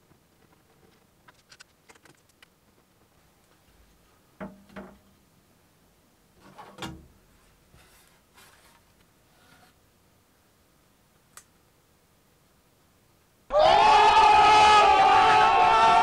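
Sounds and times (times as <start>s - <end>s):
soft rubbing: 7.3s - 9.8s.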